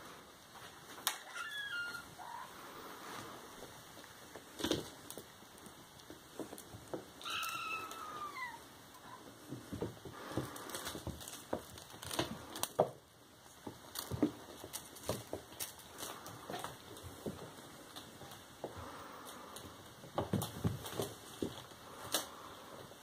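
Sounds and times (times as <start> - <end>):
kittens scuffling on wooden floor: 0.5 - 23.0
kitten meowing: 1.2 - 2.5, 7.2 - 8.6.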